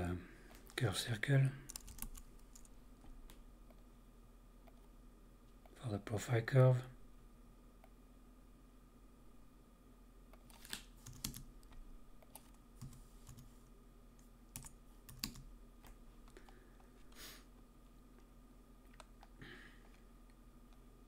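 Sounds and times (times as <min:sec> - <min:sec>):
low electrical hum: 0:00.0 - 0:21.0
keyboard and mouse clicks: 0:18.8 - 0:19.3.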